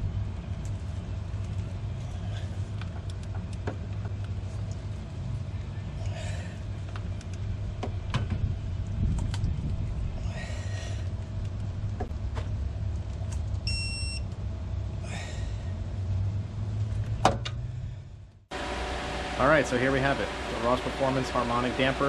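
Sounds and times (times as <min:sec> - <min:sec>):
low rumble: 0:00.0 - 0:18.5
short electronic beep: 0:13.7 - 0:14.2.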